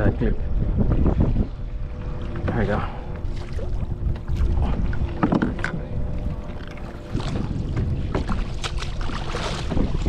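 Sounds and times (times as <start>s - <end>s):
wind buffeting microphone: 0.0s - 10.0s
water slapping against kayak: 2.1s - 10.0s
sharp knocks and splashes: 6.7s - 10.0s.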